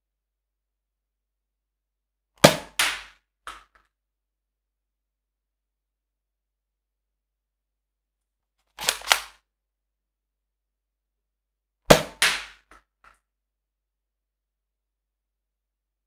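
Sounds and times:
toy blaster plastic clacks: 0:08.7 - 0:09.4
toy blaster cracks: 0:08.8 - 0:09.4.

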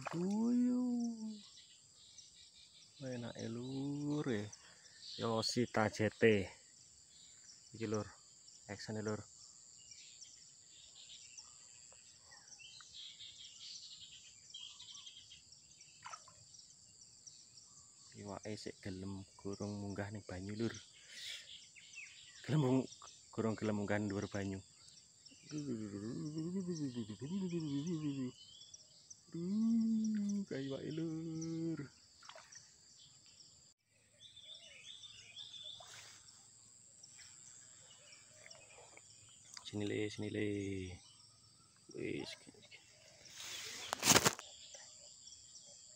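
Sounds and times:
bird chirps: 0:00.0 - 0:16.7, 0:17.3 - 0:45.9
insects droning: 0:00.0 - 0:45.9
high-pitched insect drone: 0:25.5 - 0:28.4.

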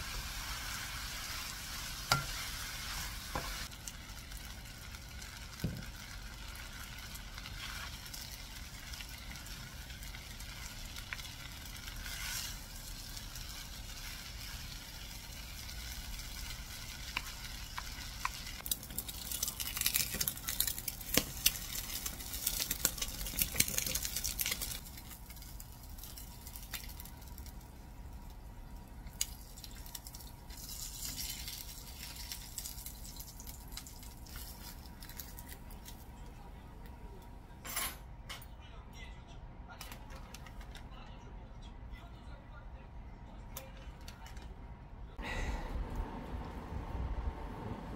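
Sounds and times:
fried rice sizzling in a pan: 0:00.0 - 0:35.4
eggs frying in oil: 0:00.0 - 0:36.0.

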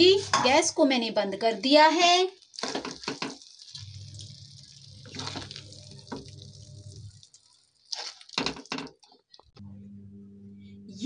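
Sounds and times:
mashed food squishing: 0:02.4 - 0:09.6
low steady hum: 0:03.8 - 0:07.3, 0:09.5 - 0:11.0.

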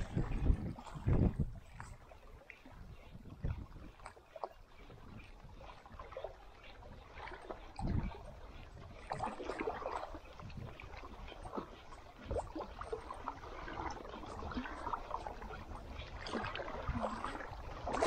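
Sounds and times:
water sloshing against boat hull: 0:00.0 - 0:18.0
wind rumble on microphone: 0:00.0 - 0:18.0.

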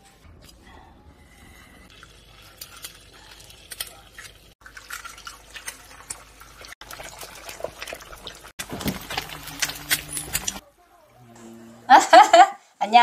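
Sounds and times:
stew bubbling in a pot: 0:01.9 - 0:10.6
eggs sizzling in a hot pan: 0:01.9 - 0:11.1
eggs being cracked: 0:02.1 - 0:10.6.

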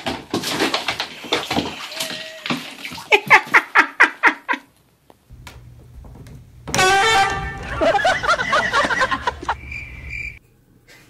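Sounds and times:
faint low hum: 0:05.3 - 0:11.0.

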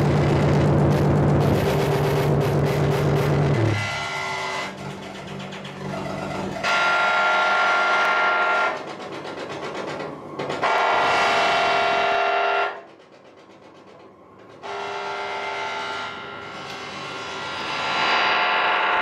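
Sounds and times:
metallic synthesizer drones: 0:00.0 - 0:07.8.

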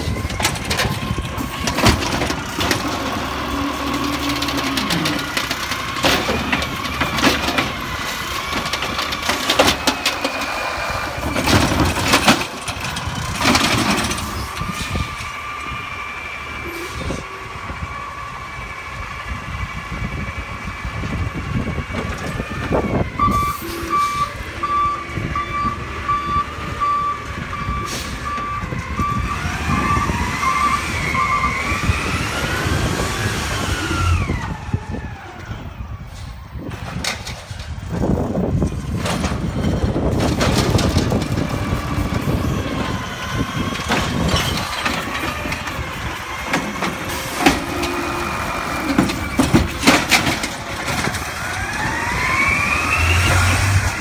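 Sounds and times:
truck engine revving: 0:00.0 - 0:36.0, 0:36.6 - 0:54.0
beeping alarm: 0:23.2 - 0:31.7.

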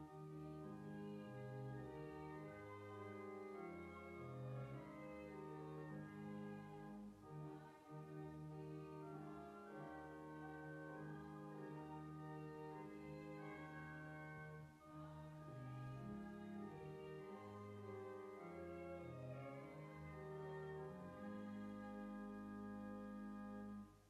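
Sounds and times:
church organ playing a hymn: 0:00.0 - 0:24.0.

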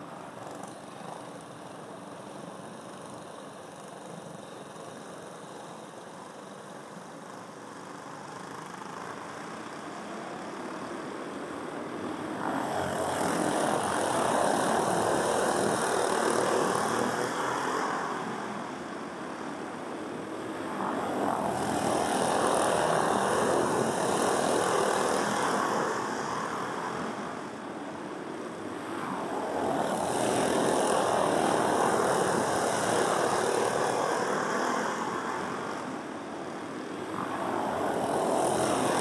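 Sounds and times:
go-kart engines racing: 0:12.0 - 0:18.9, 0:21.0 - 0:27.6, 0:29.2 - 0:36.0, 0:37.0 - 0:39.0.

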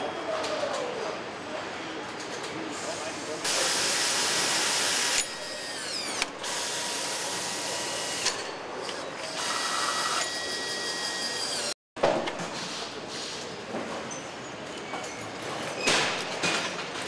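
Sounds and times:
factory noise: 0:00.0 - 0:17.0
pneumatic tools whirring and ratcheting: 0:03.4 - 0:11.8.

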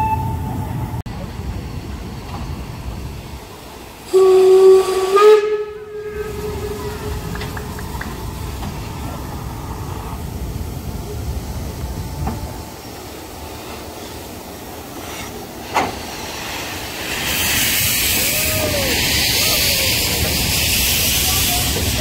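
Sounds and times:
steam locomotive whistle: 0:00.0 - 0:00.7, 0:04.1 - 0:07.8
steam hiss: 0:01.3 - 0:22.0.

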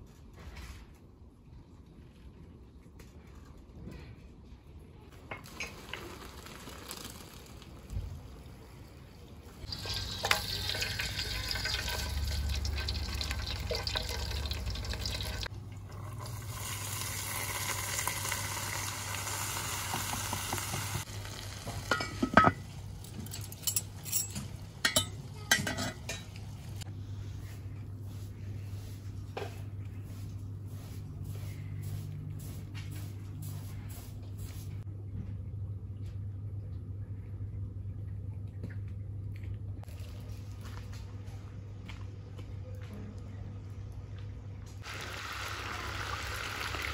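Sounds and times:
hot oil sizzling: 0:09.6 - 0:23.0, 0:44.8 - 0:46.9.

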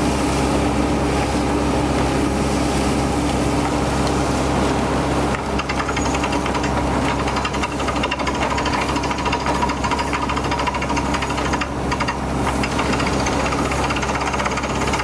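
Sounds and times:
drilling rig running: 0:05.2 - 0:15.0
rapid engine clatter: 0:05.2 - 0:15.0.

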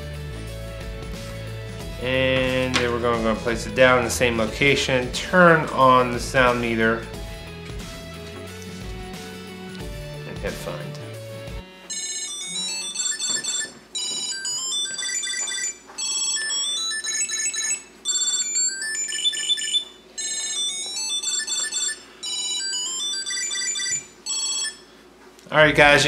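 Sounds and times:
high-pitched electronic melody: 0:11.9 - 0:24.8.

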